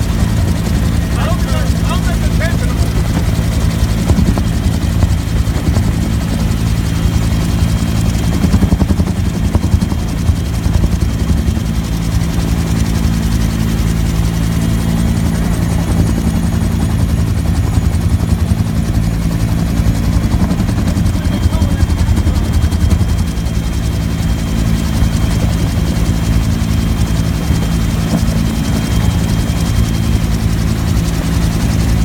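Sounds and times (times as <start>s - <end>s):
helicopter rotor beating: 0.0s - 32.0s
turbine engine running: 0.0s - 32.0s.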